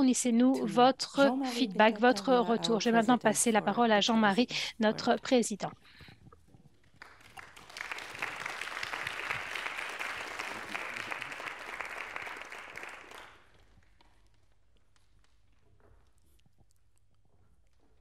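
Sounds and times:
audience applauding: 7.0 - 13.8.

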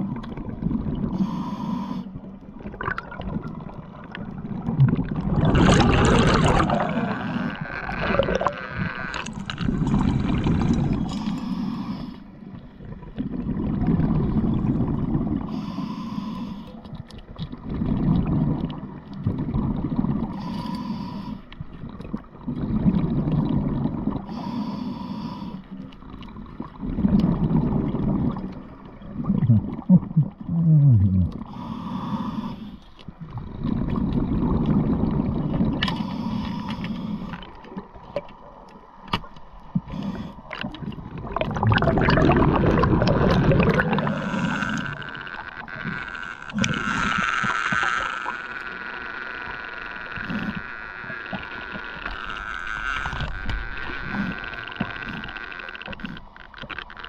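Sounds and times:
regulator inhale hiss: 1.1 - 2.3, 11.0 - 12.5, 15.5 - 16.9, 20.3 - 21.6, 24.3 - 25.9, 31.4 - 33.0, 35.9 - 37.6, 39.7 - 40.6, 43.9 - 45.4
exhaust bubbles rumbling: 2.6 - 11.1, 26.2 - 31.5, 40.7 - 45.1.

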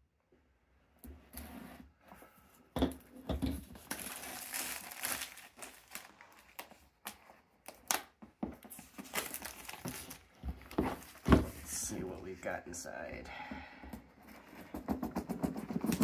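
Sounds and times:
plastic shrink-wrap crinkling and tearing: 3.7 - 10.4.

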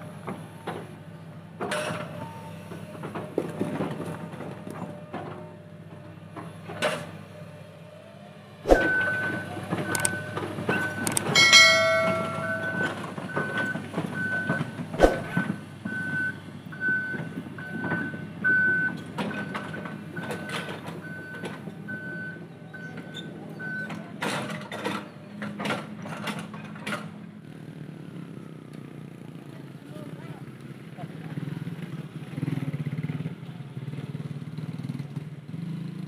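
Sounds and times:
diesel engine running: 0.0 - 36.0
reversing alarm beeping: 8.8 - 24.0
metallic clanks: 10.8 - 13.7.

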